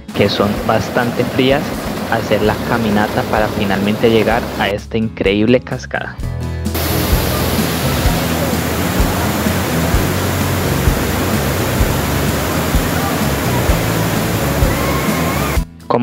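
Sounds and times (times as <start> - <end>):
waterfall roaring: 0.1 - 4.7, 6.8 - 15.6
music beat thudding: 6.8 - 15.6.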